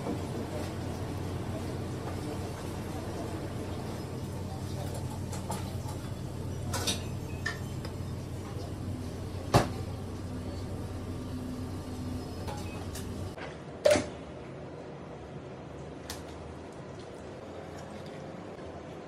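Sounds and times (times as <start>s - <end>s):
steady low hum: 0.0s - 13.4s.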